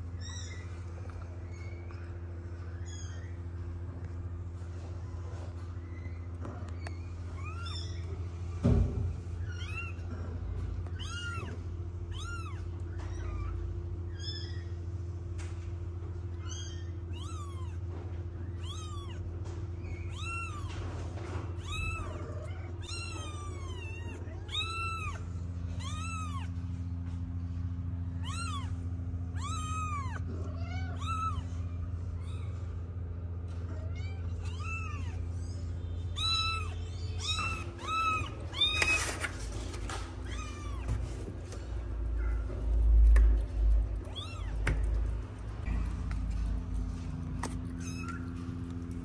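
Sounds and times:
steady low hum: 0.0s - 49.0s
kitten mewing: 21.5s - 26.6s, 28.2s - 31.7s.

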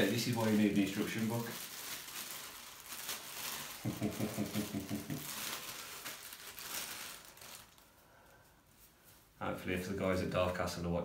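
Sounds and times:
plastic bag crinkling: 0.0s - 8.4s
tissue paper rustling: 0.0s - 9.4s
man murmuring: 3.9s - 5.3s.

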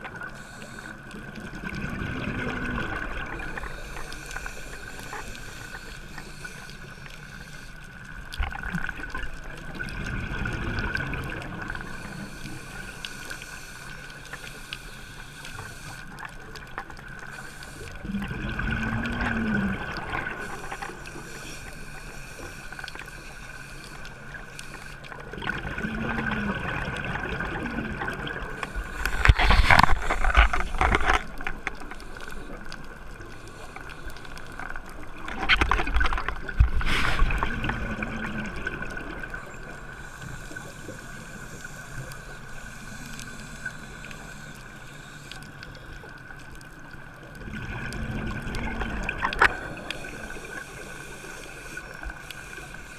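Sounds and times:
diver breathing through regulator: 0.2s - 1.2s, 3.4s - 7.8s, 11.6s - 16.2s, 17.2s - 25.3s, 28.5s - 34.5s, 36.6s - 37.8s, 39.8s - 46.2s, 49.3s - 52.9s
exhaled bubbles rumbling: 1.4s - 3.9s, 8.4s - 12.1s, 18.0s - 20.6s, 25.2s - 31.9s, 34.8s - 39.8s, 47.3s - 50.4s.

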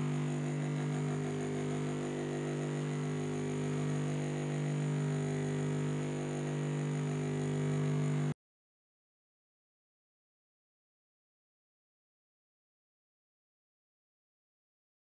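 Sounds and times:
bench grinder motor hum: 0.0s - 8.4s.

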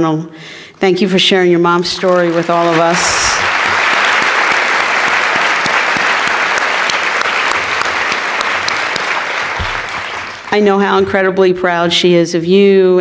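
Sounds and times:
large audience applauding: 1.8s - 10.8s
single claps: 2.1s - 10.6s.

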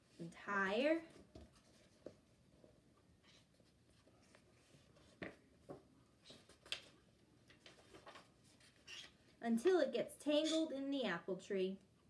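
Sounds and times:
book pages rustling: 1.1s - 9.3s.

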